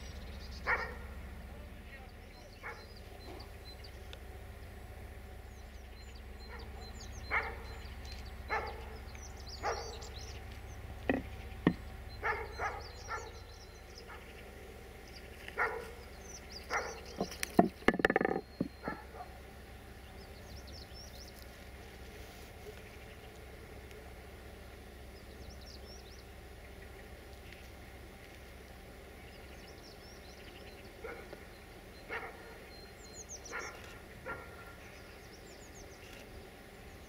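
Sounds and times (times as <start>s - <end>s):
birds chirping: 0.0s - 37.0s
steady low hum: 0.0s - 37.0s
dog barking: 0.6s - 1.1s, 2.6s - 2.9s, 6.4s - 7.8s, 8.5s - 9.0s, 9.6s - 10.1s, 12.2s - 13.4s, 14.1s - 14.3s, 15.6s - 16.0s, 16.7s - 17.1s, 18.8s - 19.4s, 31.0s - 31.3s, 32.1s - 32.6s, 33.5s - 34.8s
sharp knocks: 11.1s - 11.8s, 17.2s - 19.0s.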